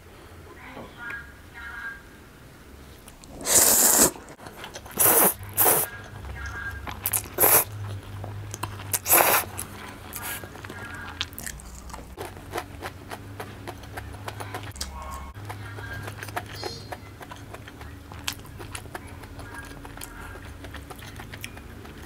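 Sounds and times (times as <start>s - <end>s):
wet chewing mouth clicks: 3.1s - 22.0s
slurping noodles: 3.2s - 5.9s, 7.1s - 7.8s, 8.9s - 10.4s.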